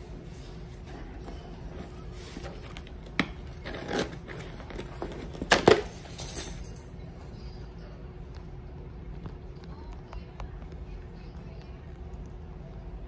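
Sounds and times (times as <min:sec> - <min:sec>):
cardboard scraping rustles: 0:00.2 - 0:05.7.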